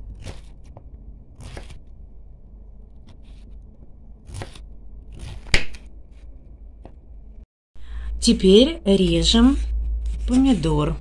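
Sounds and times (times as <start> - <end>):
knife cutting on cutting board: 0.1 - 0.8, 1.4 - 1.8, 4.2 - 5.9.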